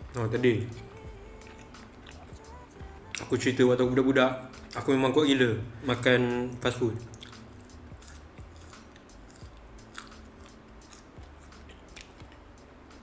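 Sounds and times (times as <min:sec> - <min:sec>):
chewing crunchy fries: 0:01.3 - 0:02.5, 0:07.0 - 0:12.6
wet mouth clicks: 0:07.1 - 0:12.5.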